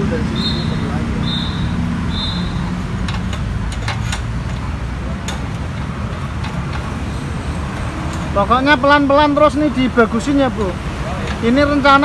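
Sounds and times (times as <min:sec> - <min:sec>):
metallic clicks and taps: 0:03.0 - 0:06.9.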